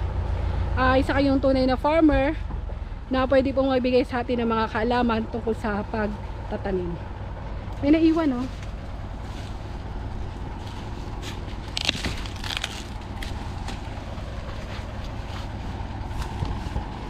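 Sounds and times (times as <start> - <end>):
steady low rumble: 0.0 - 17.0
dry husks and leaves crunching: 7.3 - 17.0.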